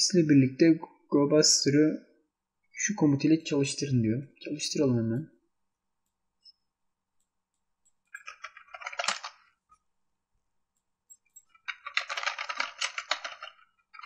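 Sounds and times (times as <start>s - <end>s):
computer keyboard typing: 7.8s - 9.5s, 11.1s - 14.0s.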